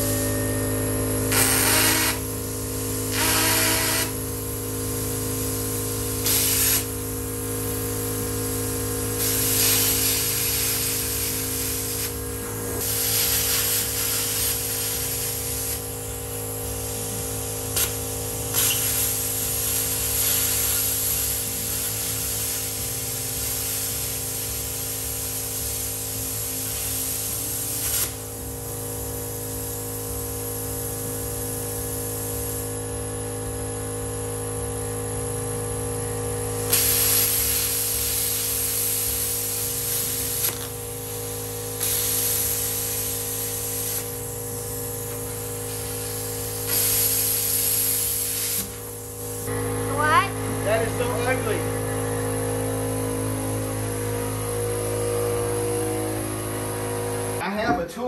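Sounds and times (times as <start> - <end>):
machine hum: 0.0 - 23.6, 37.8 - 58.0
plasma cutter hissing: 1.3 - 28.3, 36.6 - 49.5.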